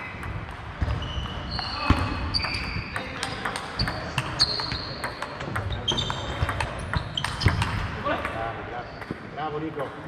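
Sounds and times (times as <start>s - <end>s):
high squeaks: 0.8s - 7.8s.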